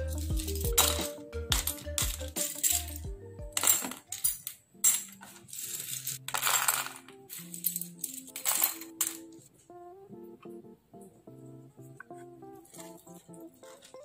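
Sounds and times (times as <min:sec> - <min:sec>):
background music: 0:00.0 - 0:14.0
plastic parts clattering into tray: 0:00.1 - 0:03.0, 0:03.6 - 0:09.3.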